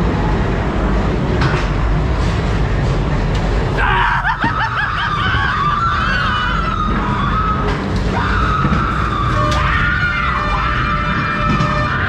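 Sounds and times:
ride car rumbling on track: 0.0 - 12.0.

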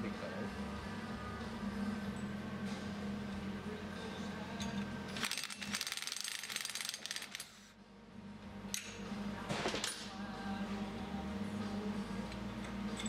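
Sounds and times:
impact wrench rattling: 4.7 - 7.4.

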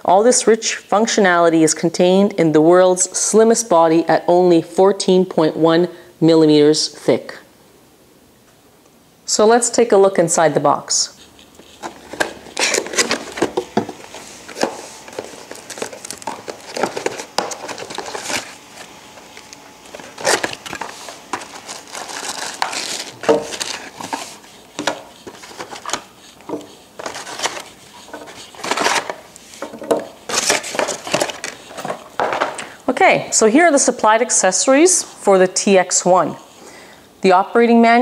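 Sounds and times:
cardboard and plastic crinkling: 11.4 - 32.8.

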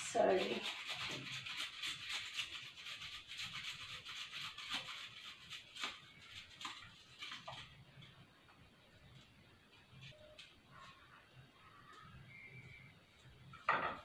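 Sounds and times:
ginger rasping on metal grater: 0.0 - 7.4.

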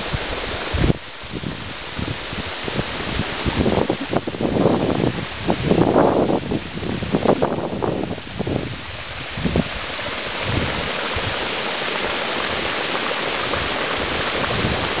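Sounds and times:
boiling water bubbling and hissing: 0.0 - 15.0
wind buffeting microphone: 0.0 - 15.0.

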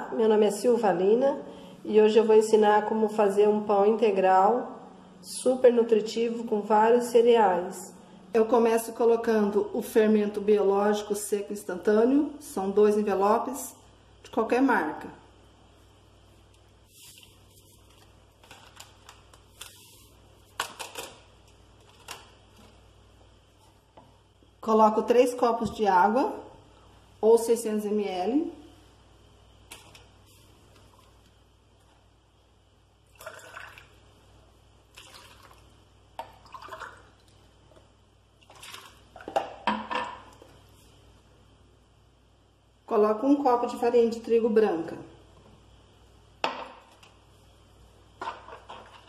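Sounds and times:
yeast sachet crinkling: 17.2 - 22.4
water pouring and splashing: 33.1 - 34.0, 34.9 - 37.4, 38.4 - 39.4.

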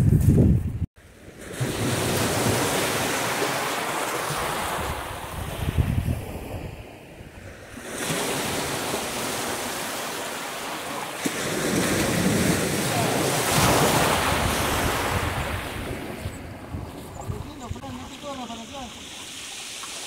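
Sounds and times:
wind buffeting microphone: 0.0 - 0.9, 4.3 - 9.5, 11.4 - 18.9
waves washing over pebbles: 1.1 - 5.5, 7.8 - 16.7, 17.6 - 20.0.

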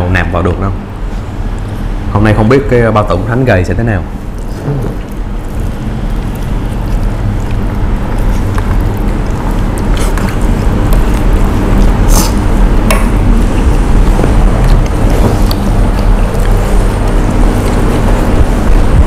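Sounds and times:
loud steady low hum: 0.0 - 19.0
wet eating sounds: 4.0 - 19.0.

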